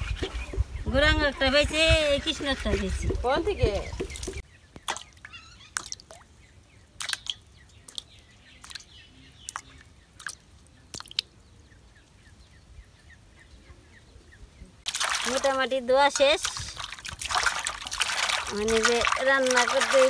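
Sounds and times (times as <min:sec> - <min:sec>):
faint bird chirps: 0:00.0 - 0:14.8
fish pieces plopping into water: 0:07.0 - 0:08.8, 0:10.2 - 0:11.2, 0:14.9 - 0:20.0.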